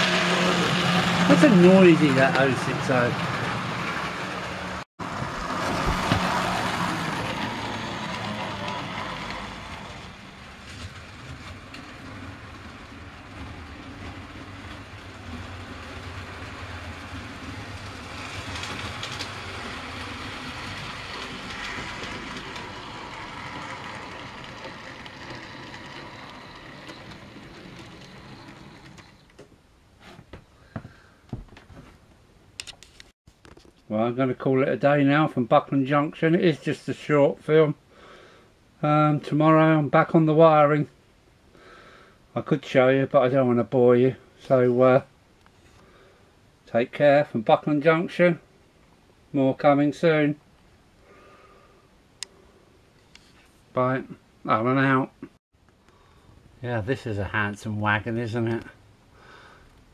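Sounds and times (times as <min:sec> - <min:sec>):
model train motors whirring: 0:00.0 - 0:04.8, 0:05.6 - 0:29.3
wheels clicking on rails: 0:00.0 - 0:29.5.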